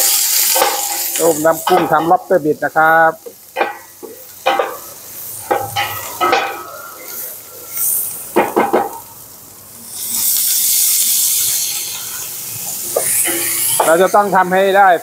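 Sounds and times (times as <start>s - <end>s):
steady hiss: 0.0s - 15.0s
metal utensils clattering on pots: 0.4s - 2.2s, 3.6s - 4.9s, 5.5s - 7.4s, 8.4s - 9.0s, 12.9s - 14.1s.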